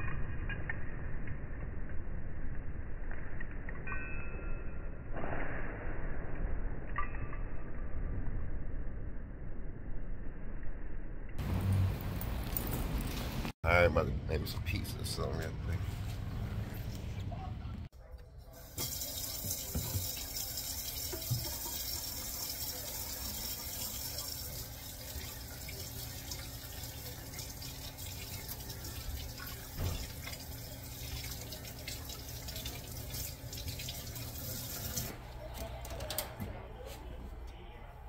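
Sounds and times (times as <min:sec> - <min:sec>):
water running from a tap: 0:18.6 - 0:35.2.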